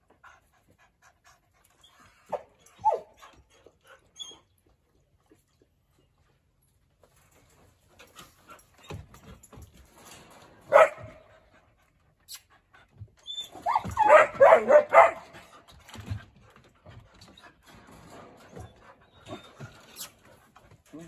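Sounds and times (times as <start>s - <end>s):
puppy yowling and whining: 2.3s - 3.2s, 4.2s - 4.5s, 13.2s - 15.2s
chain-link kennel clatter: 6.8s - 12.1s, 13.4s - 21.0s
puppy barking: 10.7s - 11.2s, 13.7s - 15.4s.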